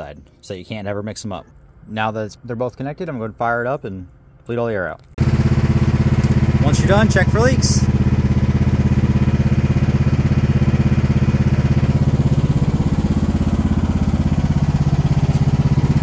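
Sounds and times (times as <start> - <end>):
excavator engine running: 5.2 - 16.0.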